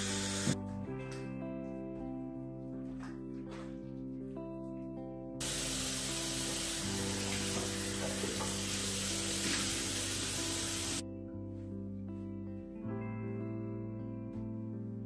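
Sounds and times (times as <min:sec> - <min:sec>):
background music: 0:00.0 - 0:15.0
tap running into sink: 0:05.4 - 0:11.0.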